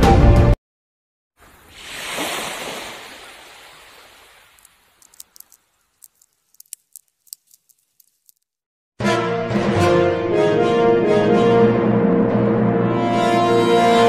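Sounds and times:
light high clicks of scuttling: 0:04.6 - 0:08.5
dramatic music with timpani: 0:09.0 - 0:14.0.

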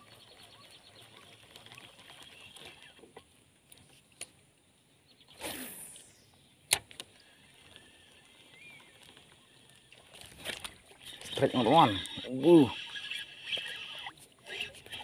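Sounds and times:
bird chirp: 0:00.0 - 0:02.6, 0:04.9 - 0:07.5, 0:08.2 - 0:09.8
fishing rod swish: 0:05.4 - 0:06.1.

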